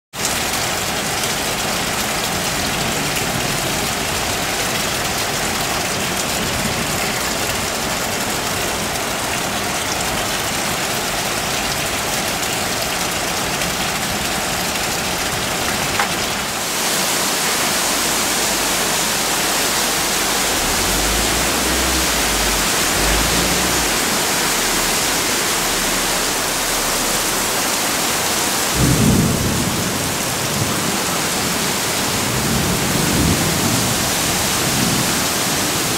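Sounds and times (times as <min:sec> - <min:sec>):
rain falling: 0:00.2 - 0:35.9
low rumble: 0:18.1 - 0:29.8.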